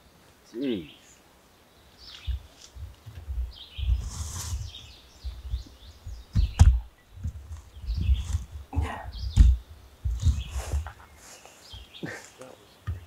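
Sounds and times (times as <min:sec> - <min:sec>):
small birds chirping: 0:00.0 - 0:13.0
rustling: 0:01.9 - 0:13.0
low thumps: 0:02.2 - 0:11.1.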